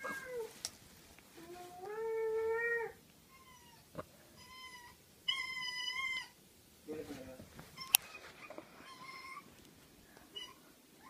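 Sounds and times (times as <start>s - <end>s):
cat meowing: 7.8s - 9.5s, 10.3s - 10.6s.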